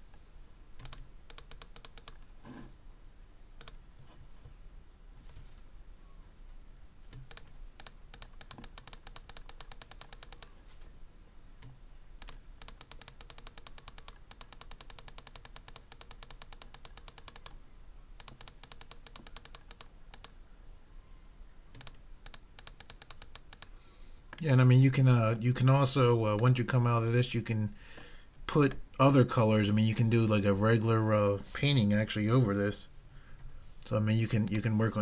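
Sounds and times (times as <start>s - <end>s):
computer mouse clicking: 0.8s - 2.2s, 3.6s - 3.8s, 7.1s - 10.6s, 11.6s - 17.6s, 18.2s - 20.4s, 21.7s - 23.7s.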